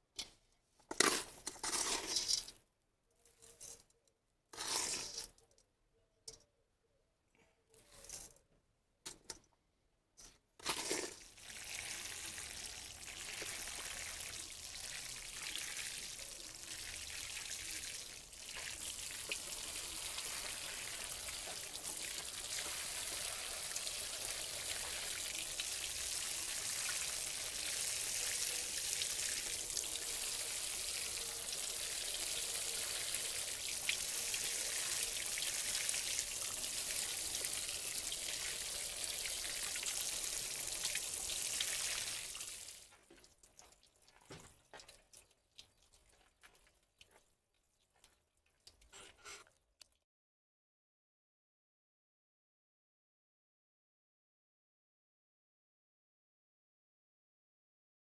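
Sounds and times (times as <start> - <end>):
water spraying from watering can: 10.6 - 42.8.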